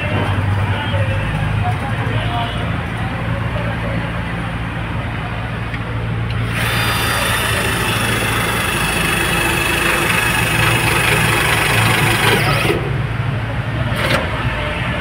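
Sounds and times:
vehicle engine idling: 2.4 - 13.8
small electric motor whining: 6.5 - 12.8.

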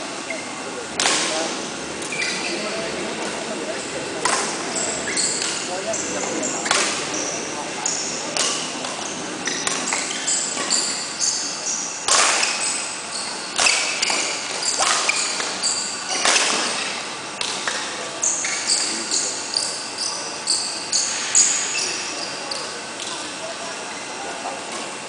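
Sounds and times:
shoes squeaking on court: 0.2 - 0.7, 2.0 - 24.9
racket striking shuttlecock: 4.2 - 4.6, 6.6 - 7.0, 12.1 - 12.8, 13.5 - 17.8.

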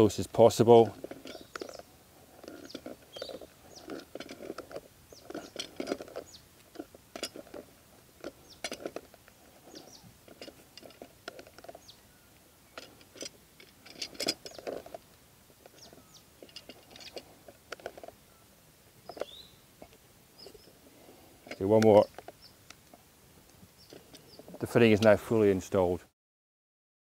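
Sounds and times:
pliers clicking and creaking on plastic: 1.0 - 11.9, 21.4 - 22.9.

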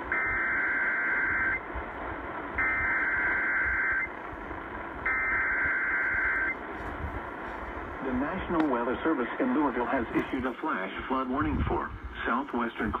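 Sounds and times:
buzzing data bursts: 0.0 - 1.7, 2.6 - 4.2, 5.0 - 6.6
radio static hiss: 0.0 - 13.0.

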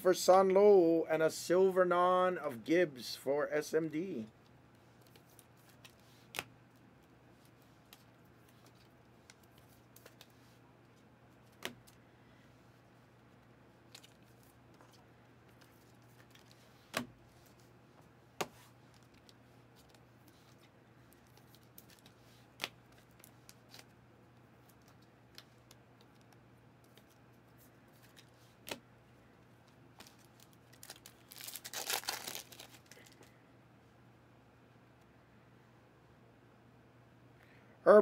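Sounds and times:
trading cards being handled: 4.8 - 12.0, 13.2 - 17.7, 18.4 - 28.8, 29.4 - 33.4
foil wrapper tearing and crinkling: 30.0 - 33.2.

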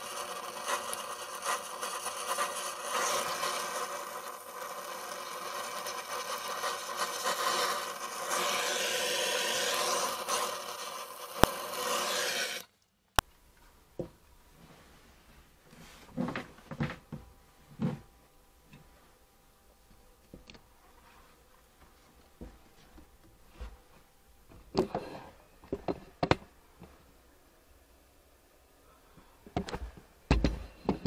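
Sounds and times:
gas torch flame hissing: 0.0 - 12.7
faint room noise: 0.0 - 31.0.

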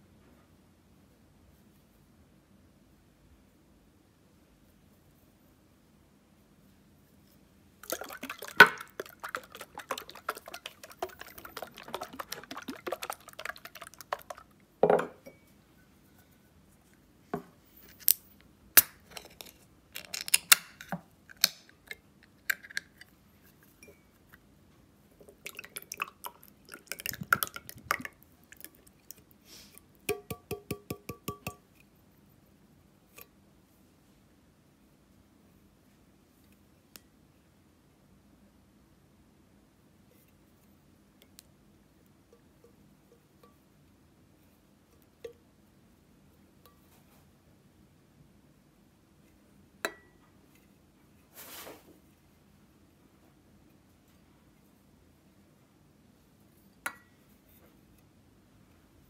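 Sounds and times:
soup pouring: 7.8 - 15.2, 25.3 - 29.3
ringing taps on metal can: 30.1 - 31.6.

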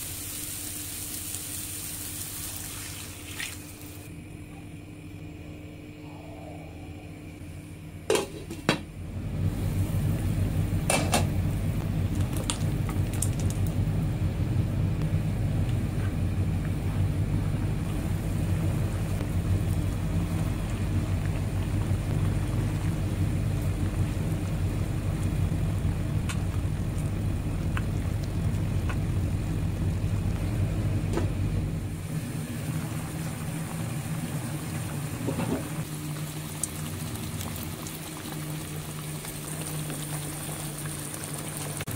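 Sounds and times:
gravy bubbling in a pan: 17.8 - 31.0, 32.0 - 41.9.

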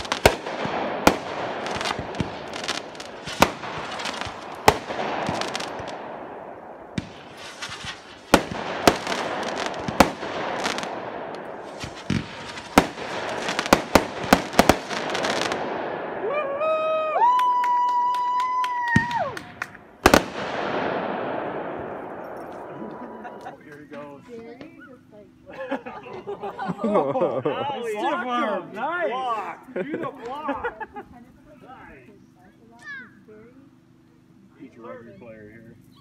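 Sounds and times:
fireworks bangs: 0.0 - 16.5, 17.9 - 23.6
fireworks crackling: 0.0 - 24.5.

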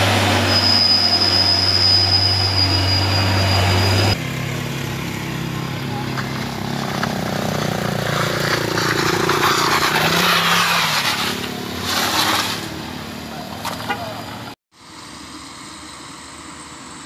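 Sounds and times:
car engine pulling under load: 0.0 - 16.9
tyres crunching over gravel: 5.3 - 12.8.

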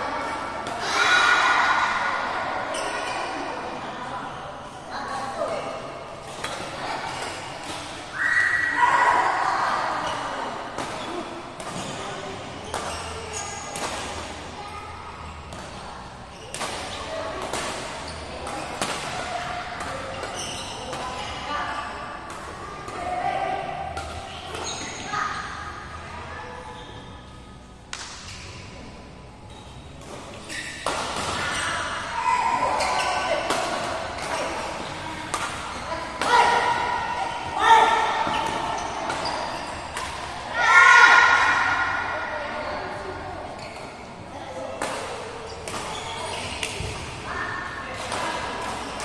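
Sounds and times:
rackets hitting shuttlecock: 10.7 - 14.5, 15.5 - 21.4, 30.0 - 32.2, 32.8 - 36.9, 37.8 - 40.4, 44.8 - 47.2.

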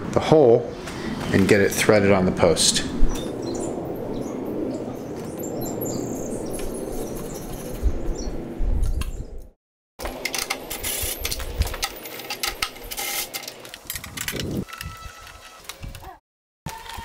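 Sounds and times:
ratchet clicking and rattling: 10.1 - 14.8.

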